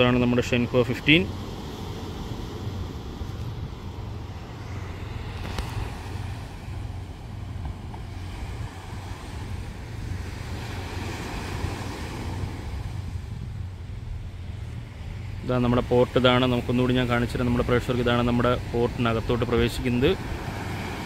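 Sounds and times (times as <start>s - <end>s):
wind noise on microphone: 2.4s - 15.5s.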